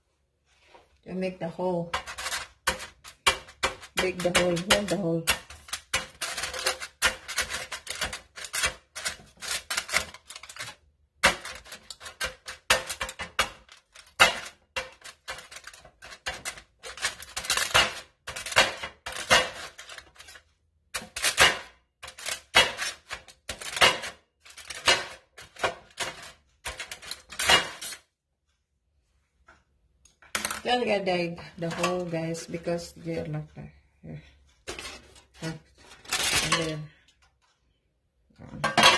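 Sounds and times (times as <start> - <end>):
skewer tapping through foil: 1.7 - 28.0, 34.7 - 36.8.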